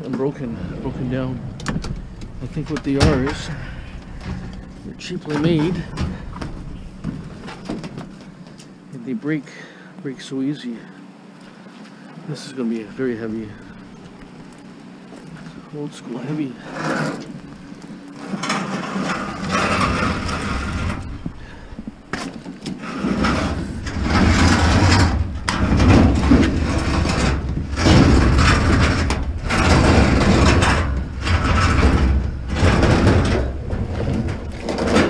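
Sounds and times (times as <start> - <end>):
metal cabinet scraping: 0.0 - 8.4, 16.3 - 21.7, 22.7 - 35.0
low rumble: 0.0 - 8.8, 12.6 - 15.8, 16.4 - 22.1, 22.8 - 35.0.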